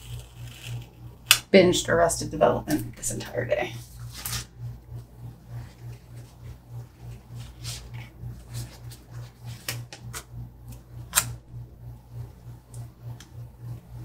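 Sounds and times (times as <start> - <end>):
low pulsing hum: 0.0 - 14.0
paper rustling: 3.8 - 4.5, 7.0 - 10.2.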